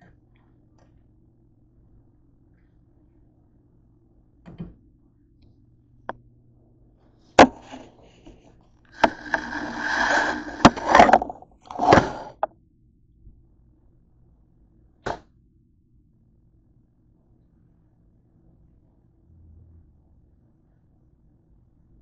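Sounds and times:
kitchenware scraping and clattering: 9.0s - 12.5s.

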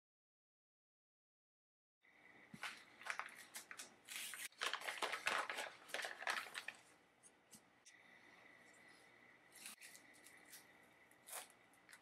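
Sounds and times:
paper and plastic packaging rustling: 2.6s - 7.6s.

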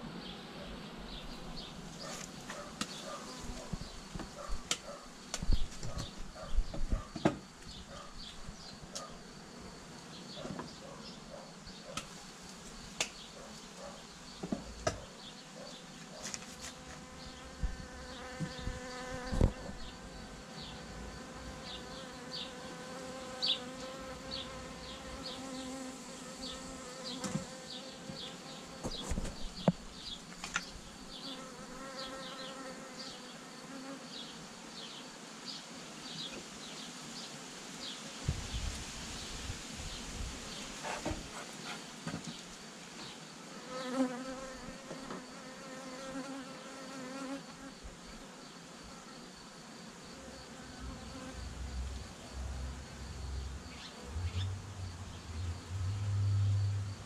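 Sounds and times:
honeybees buzzing: 0.0s - 57.0s
sharp knocks on hive: 3.7s - 7.5s, 14.4s - 15.1s, 17.6s - 19.7s, 27.2s - 29.8s.

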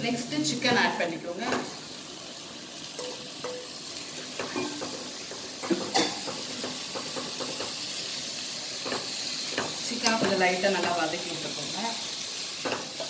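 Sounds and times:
meat sizzling in hot oil: 0.0s - 13.0s
utensils knocking against pot: 4.4s - 7.8s.

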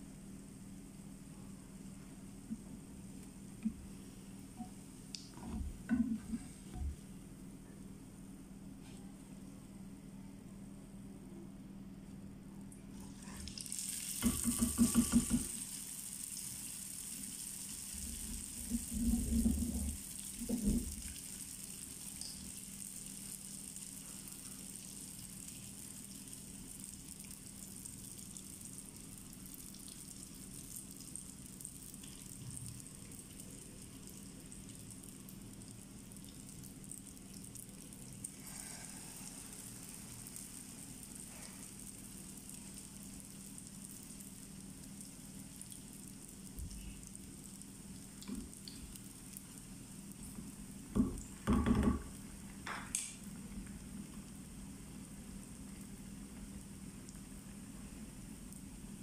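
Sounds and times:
dough sizzling in hot oil: 13.0s - 51.4s.

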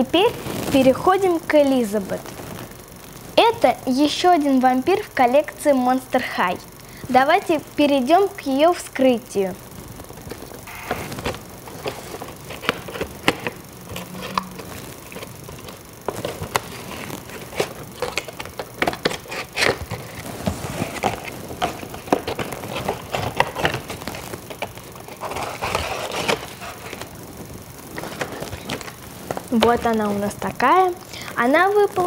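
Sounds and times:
cardboard and plastic crinkling: 10.1s - 30.9s.

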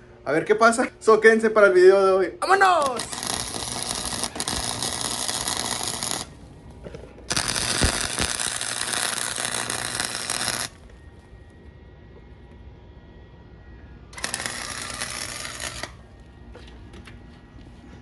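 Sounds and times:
arc welding crackling and sizzling: 0.5s - 11.4s, 14.1s - 16.3s.

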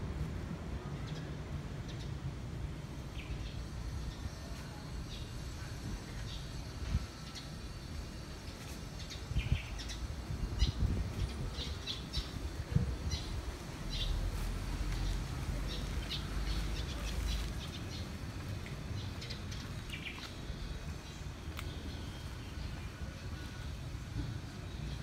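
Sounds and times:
small birds chirping: 6.2s - 23.6s.

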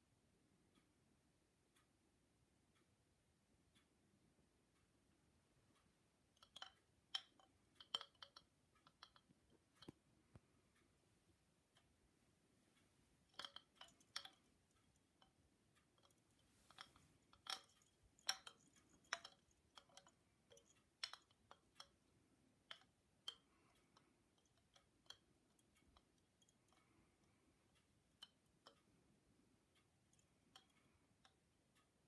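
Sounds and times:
bamboo wind chime clacking: 13.3s - 14.5s, 16.0s - 21.9s.

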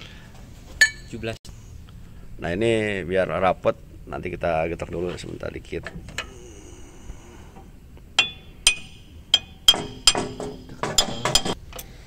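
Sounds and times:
hammer tapping on metal: 8.1s - 11.6s.

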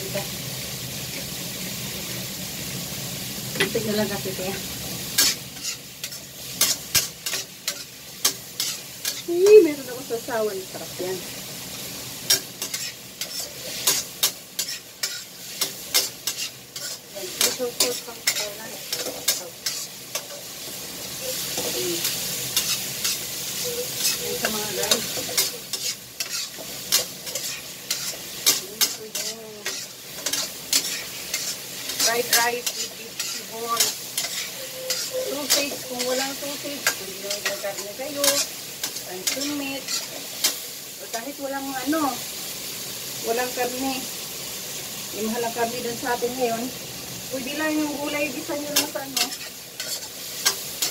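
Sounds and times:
frying sizzle: 0.0s - 50.9s
metal spatula scraping wok: 4.9s - 42.0s, 47.3s - 50.9s.

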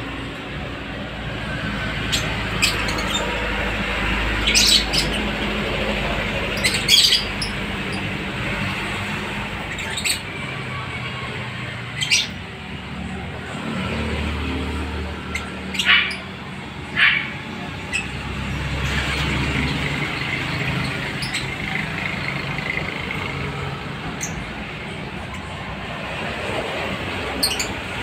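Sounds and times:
lovebirds shrill calls: 2.0s - 5.4s, 6.5s - 8.1s, 9.7s - 10.3s, 12.0s - 12.4s, 15.3s - 16.3s, 27.4s - 27.8s.

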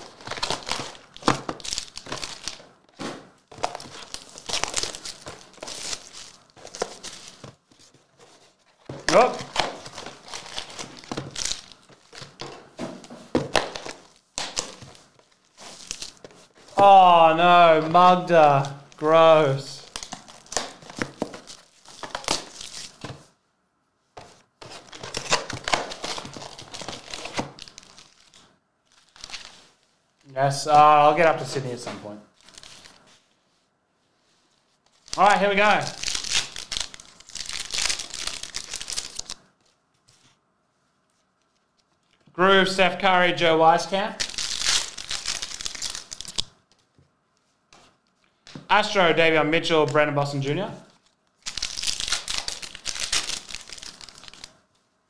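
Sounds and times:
plastic wrappers crinkling and tearing: 0.0s - 12.7s, 13.3s - 19.2s, 19.8s - 23.2s, 24.6s - 30.3s, 31.4s - 33.3s, 34.3s - 40.3s, 44.1s - 46.9s, 50.2s - 54.9s.

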